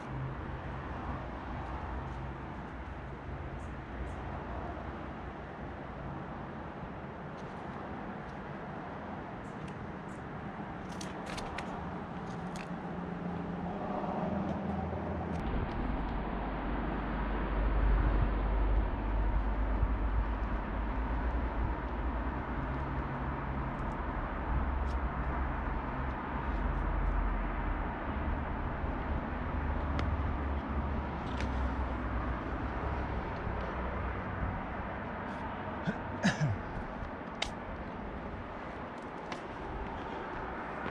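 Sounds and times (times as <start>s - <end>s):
steady rushing background noise: 0.0s - 40.9s
heavy low rumble: 15.4s - 22.2s.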